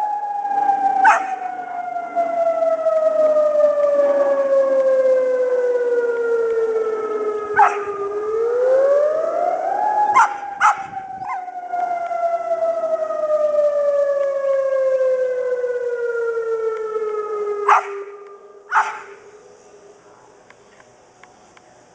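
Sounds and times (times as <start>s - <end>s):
siren wailing: 0.0s - 20.6s
dog barking sharply: 1.0s - 1.4s, 7.6s - 7.9s, 10.2s - 10.9s, 17.7s - 18.0s, 18.7s - 19.2s.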